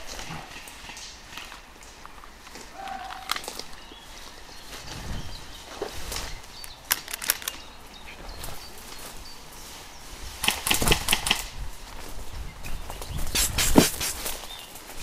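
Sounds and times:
twigs crackling: 0.0 - 9.8
footsteps through dry undergrowth: 0.0 - 10.4, 11.5 - 15.0
leaves and branches brushing: 0.0 - 15.0.

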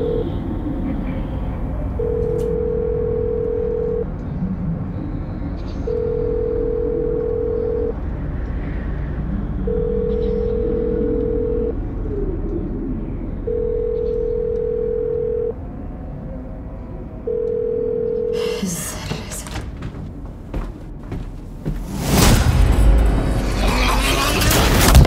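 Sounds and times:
telephone line beep: 2.0 - 4.1, 5.9 - 8.0, 9.7 - 11.8, 13.5 - 15.5, 17.3 - 18.4
low rumble: 18.9 - 25.0.

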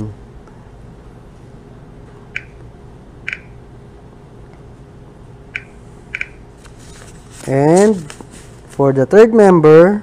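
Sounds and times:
touchscreen keypad clicks: 2.4 - 2.6, 3.3 - 3.5, 5.6 - 6.4.

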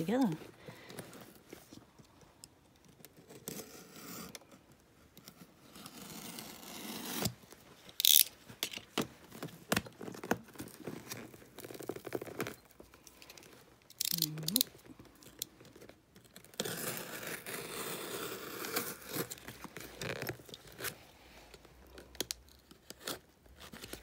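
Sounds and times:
tape tearing: 5.2 - 21.1, 21.7 - 24.0
wrapping rustling: 7.4 - 17.5
fingers scraping packing tape: 13.9 - 14.7, 16.2 - 20.9.

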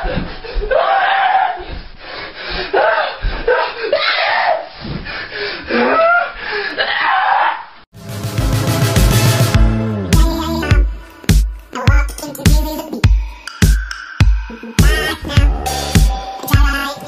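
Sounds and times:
electronic music: 8.0 - 12.9, 13.5 - 17.0.

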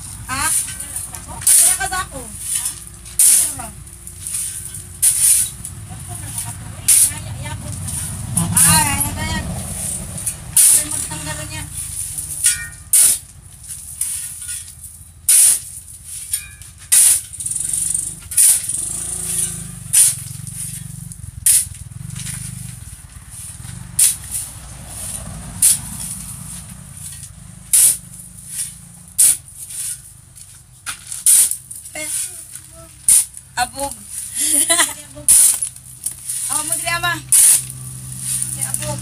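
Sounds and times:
shovel scraping cement mix: 0.0 - 39.0.

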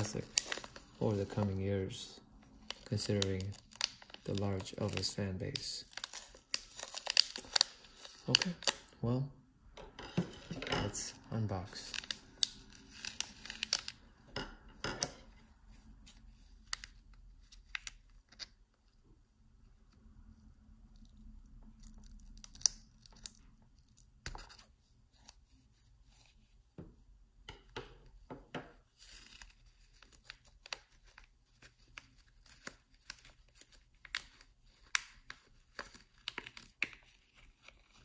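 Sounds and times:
plastic crinkling: 0.0 - 9.0, 10.4 - 14.2, 20.8 - 25.4, 28.8 - 38.0.

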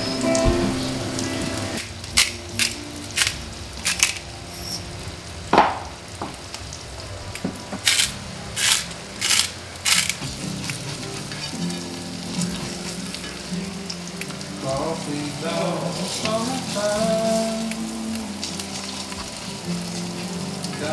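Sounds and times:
eggs sizzling in pan: 0.0 - 20.9
spice grinder crunching: 7.8 - 11.0.

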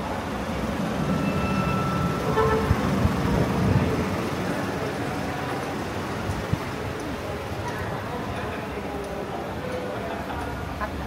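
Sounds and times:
vehicle rumble passing: 0.0 - 11.0
faint high squeal: 1.0 - 2.9.

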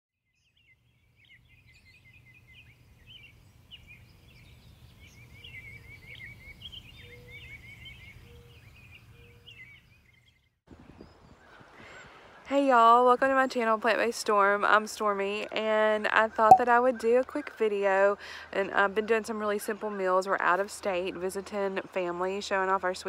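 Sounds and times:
small birds chirping: 0.4 - 12.5.

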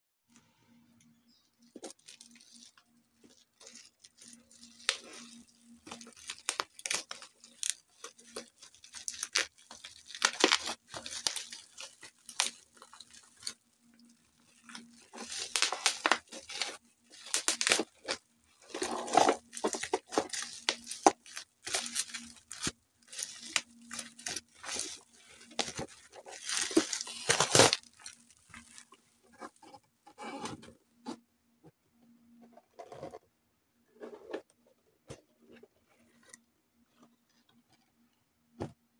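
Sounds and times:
bubble wrap crinkling and tearing: 1.5 - 29.6.

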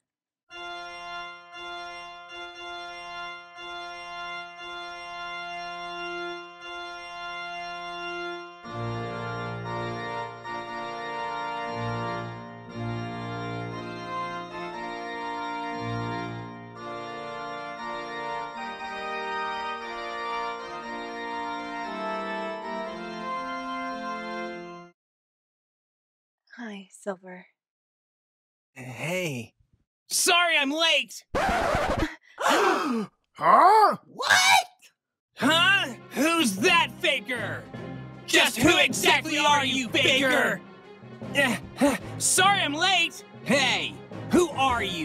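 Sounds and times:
organ music: 0.5 - 25.0, 35.4 - 45.0.

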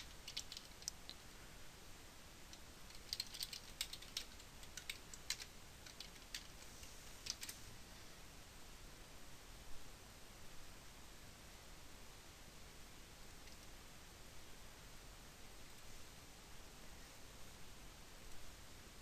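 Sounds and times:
keyboard typing: 0.0 - 1.2, 2.5 - 7.6.

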